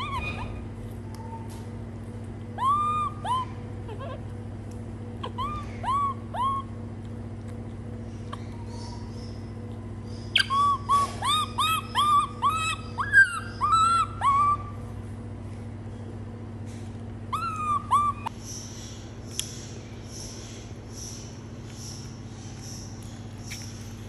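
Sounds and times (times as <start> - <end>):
baby monkey coo calls: 0.0 - 1.6, 2.5 - 4.4, 5.2 - 6.9, 8.1 - 14.9, 17.3 - 18.8.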